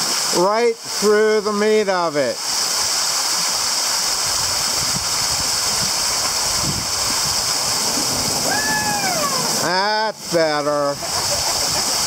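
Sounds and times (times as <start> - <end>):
waterfall splashing onto water: 0.0 - 12.0
kayak paddling: 3.3 - 10.4
brief falling whoop: 8.4 - 9.6.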